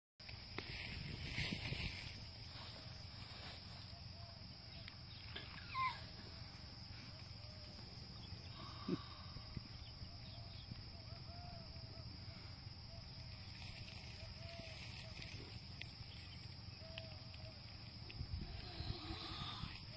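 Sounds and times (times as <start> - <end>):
faint chirps: 0.7 - 19.9
short animal cry: 5.4 - 6.2
steady hiss: 12.0 - 19.9.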